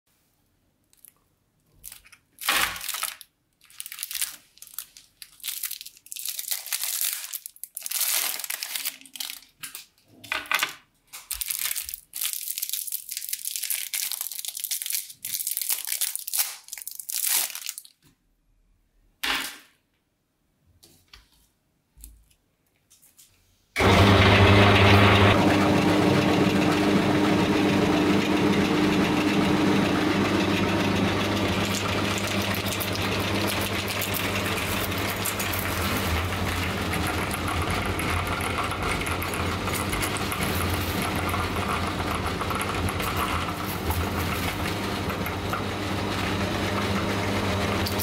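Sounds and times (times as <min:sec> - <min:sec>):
cellophane wrappers crinkling: 0:00.8 - 0:10.3, 0:11.0 - 0:18.1.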